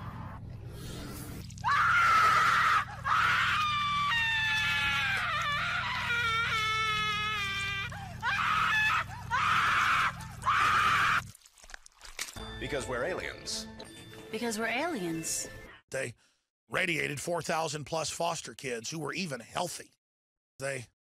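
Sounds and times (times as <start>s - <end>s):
person screaming: 1.6s - 11.3s.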